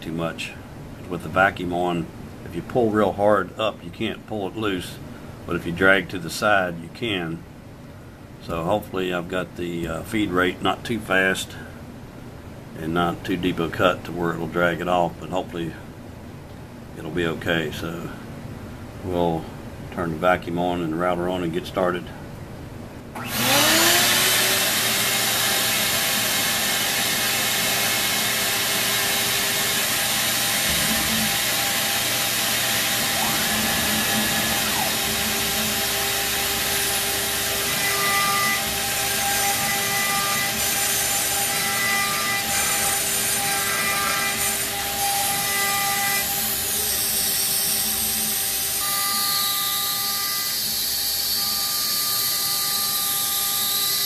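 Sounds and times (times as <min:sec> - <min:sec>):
router spindle hissing: 0:23.2 - 0:44.7
router bit boring into wood: 0:23.2 - 0:46.2
axis drive whining tones: 0:29.2 - 0:40.6.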